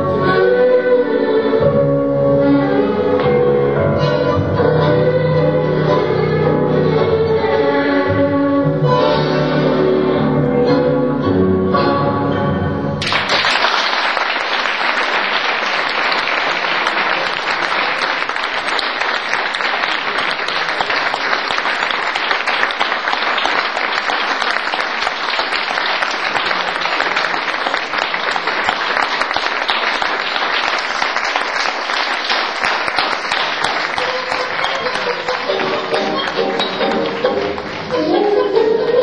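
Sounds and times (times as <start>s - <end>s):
audience applauding: 13.0s - 39.0s.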